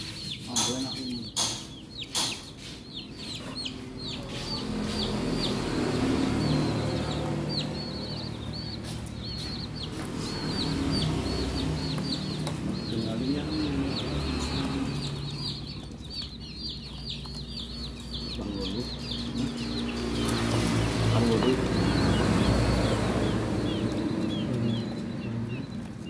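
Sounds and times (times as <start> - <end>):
chicks peeping: 0.0 - 26.0
sharp taps: 0.4 - 2.8.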